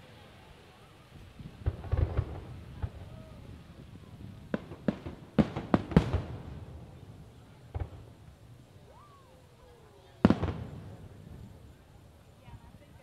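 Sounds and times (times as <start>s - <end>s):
fireworks bursting: 0.0s - 13.0s.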